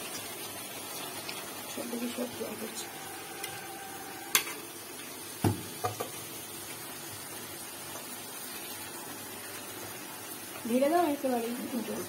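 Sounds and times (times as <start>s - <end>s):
faint sizzle: 0.0s - 12.0s
spatula knocking on pan: 5.4s - 6.2s.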